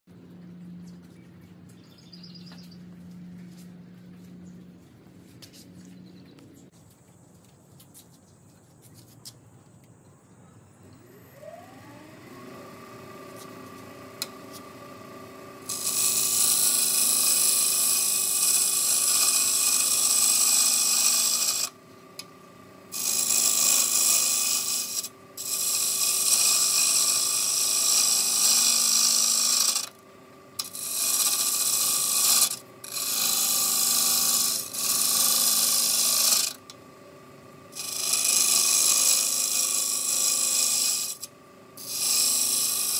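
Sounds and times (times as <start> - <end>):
lathe motor whining: 10.8 - 42.9
turning tool scraping wood: 15.7 - 21.8, 22.9 - 30.0, 30.6 - 36.8, 37.8 - 42.9.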